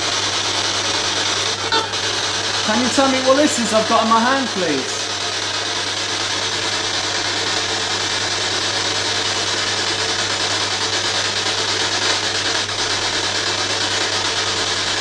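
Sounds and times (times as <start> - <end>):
radio static hiss: 1.6 - 5.4.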